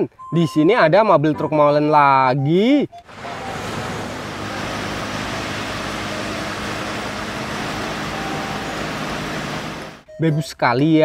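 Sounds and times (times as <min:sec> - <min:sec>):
truck diesel engine running: 0:03.0 - 0:10.1.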